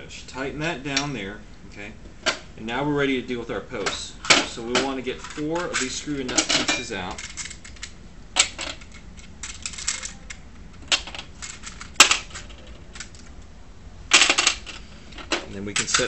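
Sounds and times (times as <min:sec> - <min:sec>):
metal pieces clicking in plastic tray: 0:04.8 - 0:13.3, 0:15.8 - 0:16.0.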